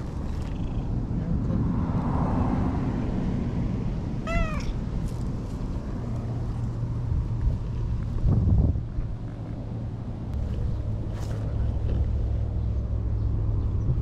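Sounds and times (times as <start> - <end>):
cat meowing: 4.2 - 4.8.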